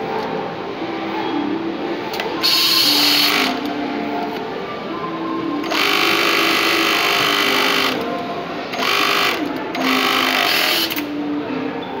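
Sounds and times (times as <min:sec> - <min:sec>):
sewing machine stitching: 0:08.8 - 0:11.1.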